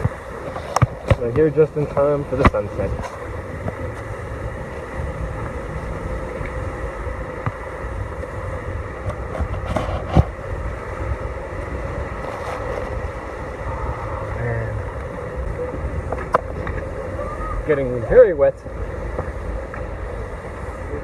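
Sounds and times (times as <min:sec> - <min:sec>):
muffled waterfall rushing: 0:00.0 - 0:21.0
wind buffeting microphone: 0:00.0 - 0:21.0.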